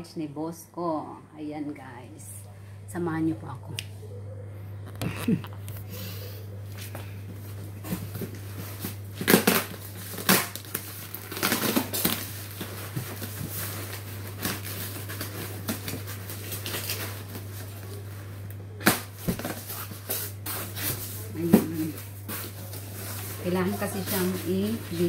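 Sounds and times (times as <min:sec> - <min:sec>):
steady low hum: 0:00.0 - 0:25.0
blade slitting packing tape: 0:09.2 - 0:12.4
cardboard flaps rustling: 0:18.9 - 0:25.0.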